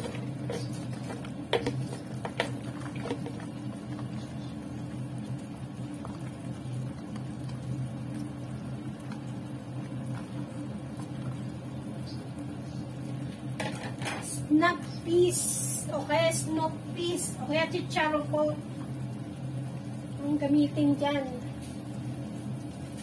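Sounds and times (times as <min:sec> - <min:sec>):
stew bubbling: 0:00.0 - 0:13.6.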